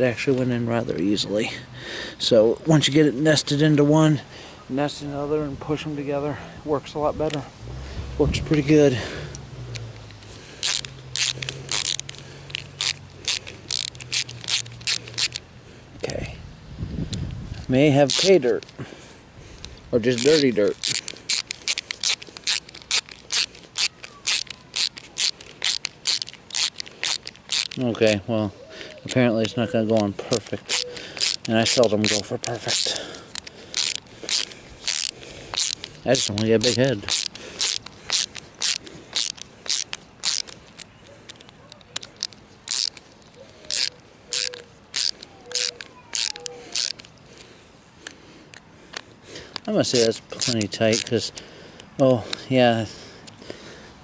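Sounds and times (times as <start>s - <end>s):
hand tool scraping on screws: 8.5s - 15.4s, 18.0s - 18.8s, 20.0s - 28.2s, 29.1s - 47.1s, 48.0s - 51.5s.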